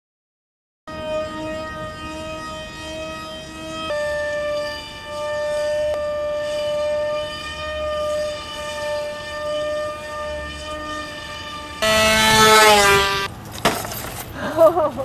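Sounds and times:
model jet motor whining: 11.8 - 13.3.

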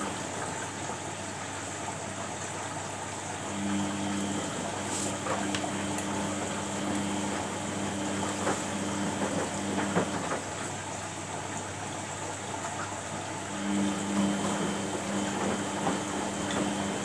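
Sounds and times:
washing machine motor hum: 0.0 - 17.0.

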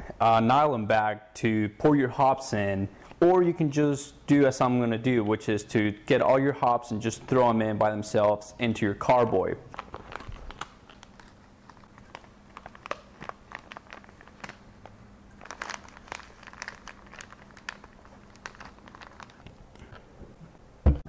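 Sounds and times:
plastic bag crinkling: 8.1 - 20.1
dry leaves rustling: 15.4 - 19.4.

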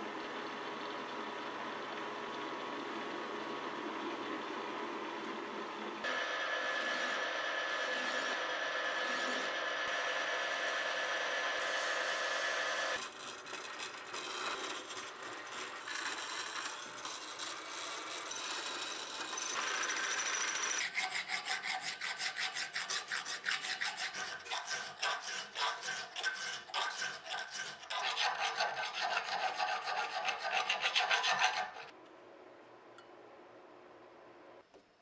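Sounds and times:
file rasping in metal: 6.1 - 12.3, 12.9 - 31.9
high squeal from drill bit: 6.1 - 13.0.

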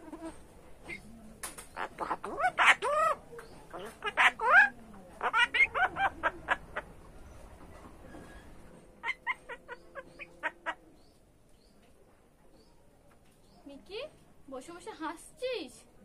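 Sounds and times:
bird calling: 0.0 - 7.0.

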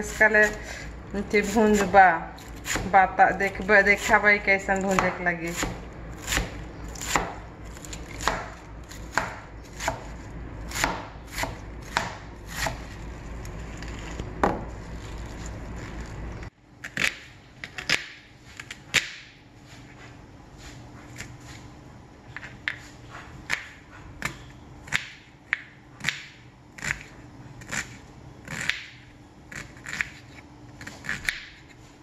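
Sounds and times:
knife chopping on plastic board: 4.9 - 10.1, 10.7 - 12.8.

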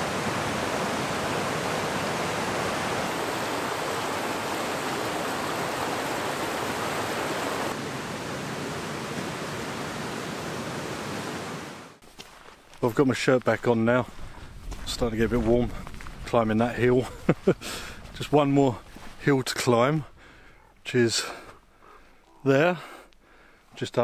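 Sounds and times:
stream rushing over boulders: 0.0 - 12.0.

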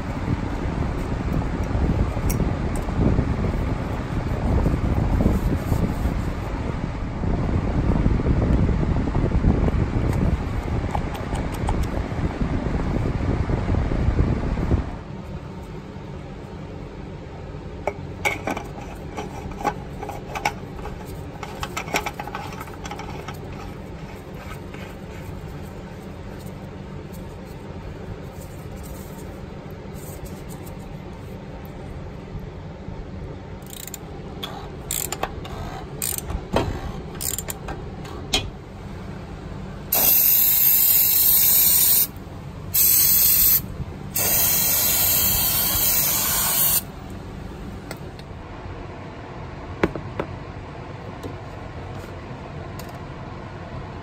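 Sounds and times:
aerosol spray hissing: 39.9 - 42.1, 42.8 - 43.6, 44.2 - 46.9.

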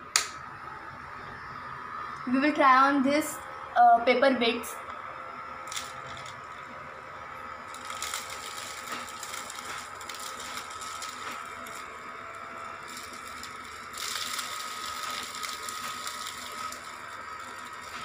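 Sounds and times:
small motor fan whining: 0.0 - 18.0.

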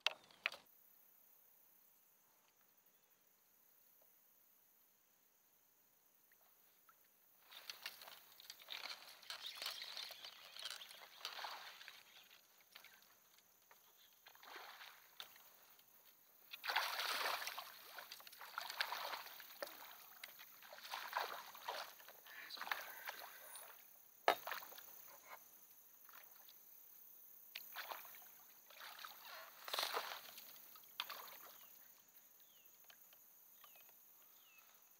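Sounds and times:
water sloshing and splashing: 7.4 - 25.1, 27.6 - 31.8.

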